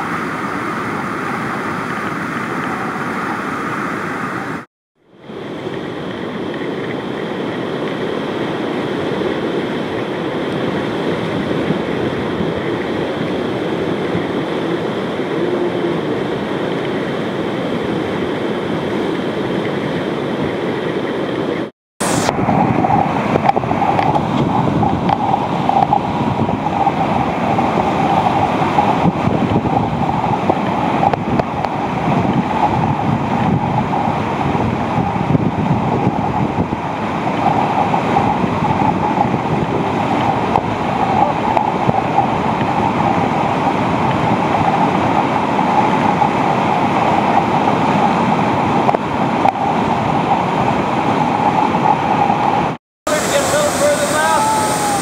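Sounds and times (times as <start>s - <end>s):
whitewater rapids roaring: 0.0s - 55.0s.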